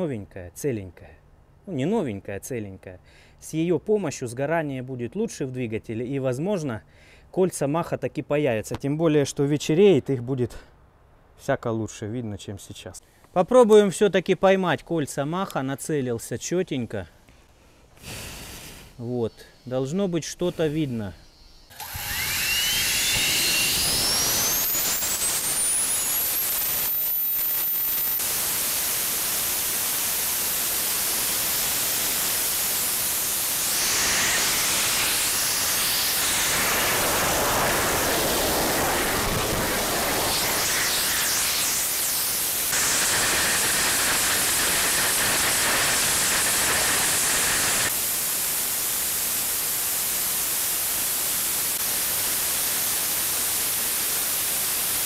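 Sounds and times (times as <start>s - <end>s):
thin rising whine: 18.9s - 28.8s, 33.0s - 44.8s
jet exhaust roar: 21.7s - 47.9s.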